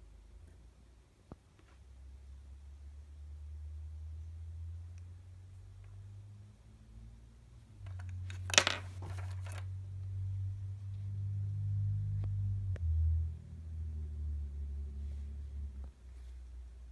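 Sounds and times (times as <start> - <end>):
low steady rumble: 0.0 - 16.9
earbuds clattering on a table: 7.8 - 9.7.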